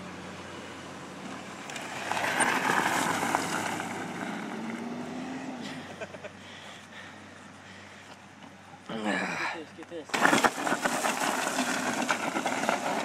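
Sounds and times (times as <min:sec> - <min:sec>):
gravel crunching and spraying: 0:00.4 - 0:07.0, 0:09.6 - 0:13.0
dirt bike engine running: 0:10.2 - 0:13.0.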